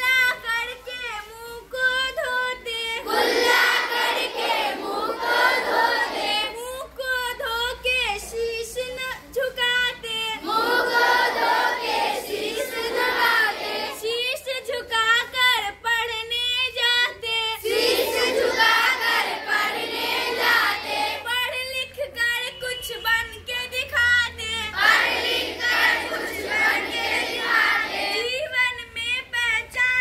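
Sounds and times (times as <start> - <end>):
girls chanting: 2.2 - 6.6, 10.4 - 14.2, 17.6 - 21.4, 24.6 - 28.6
children chanting in unison: 3.0 - 6.6, 10.4 - 14.2, 17.6 - 21.3, 24.7 - 28.3.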